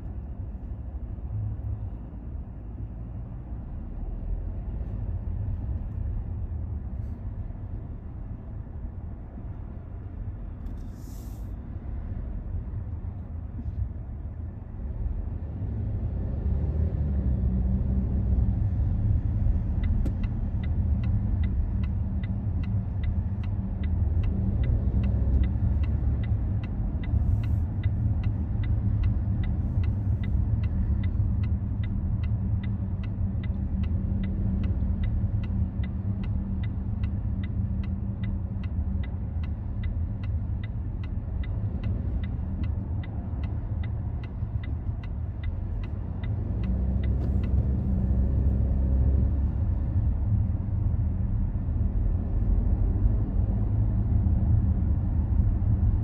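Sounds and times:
car engine and tyre rumble: 0.0 - 56.0
regular ticking: 19.5 - 48.4.

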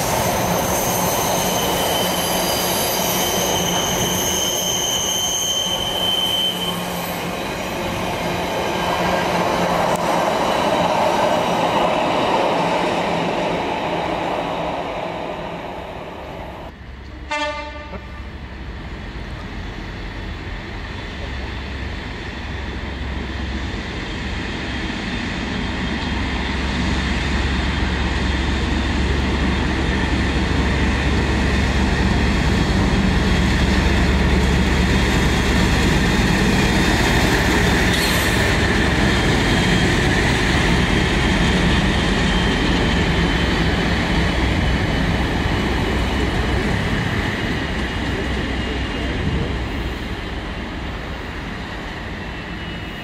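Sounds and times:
diesel locomotive engine drone: 0.0 - 53.0
train wheel noise: 17.9 - 53.0.

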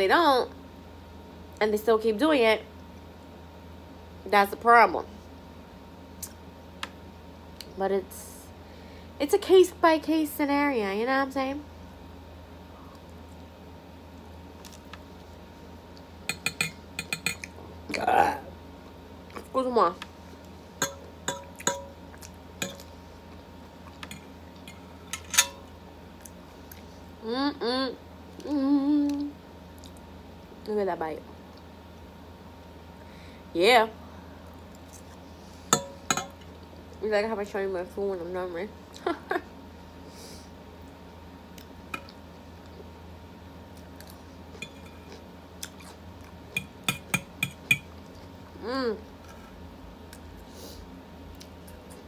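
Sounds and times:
metal fork clinking on plate: 16.3 - 17.5, 22.6 - 22.9, 25.2 - 25.6
metal fork tapping a plate: 16.3 - 17.5, 20.8 - 21.9, 22.6 - 22.8, 35.8 - 36.3, 46.6 - 47.9
person chewing salad: 21.4 - 23.0, 43.8 - 48.4
person humming: 27.2 - 29.4.

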